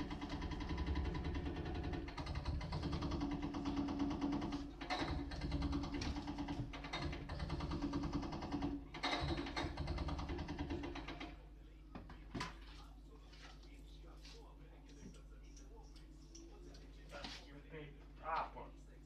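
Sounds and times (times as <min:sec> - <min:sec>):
rapid mechanical clatter: 0:00.0 - 0:11.5.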